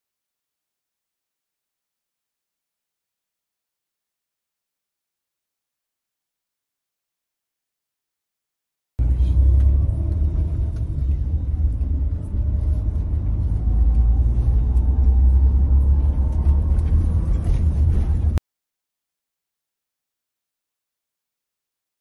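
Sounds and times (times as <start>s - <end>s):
bus engine and road rumble: 9.0s - 18.4s.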